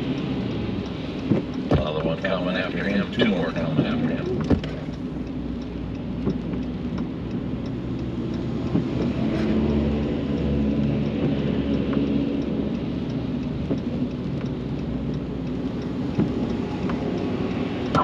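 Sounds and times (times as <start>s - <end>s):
low engine hum: 0.0s - 18.0s.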